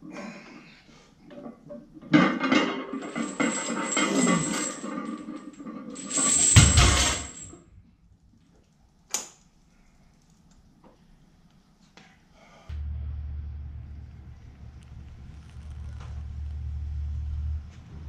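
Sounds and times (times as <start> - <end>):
metallic clattering and rattling: 1.4 - 7.6.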